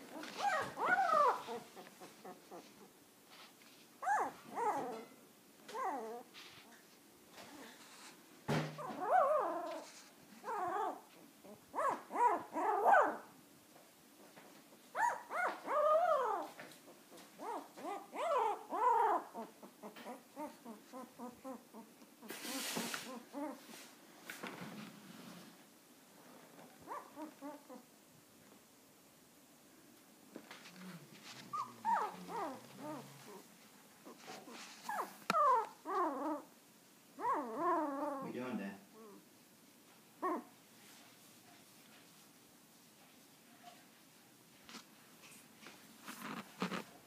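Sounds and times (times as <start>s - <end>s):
puppy whining: 0.0s - 3.0s, 4.0s - 8.1s, 8.8s - 13.3s, 14.9s - 23.8s, 26.6s - 27.9s, 30.5s - 36.5s, 37.2s - 39.3s, 40.2s - 40.5s.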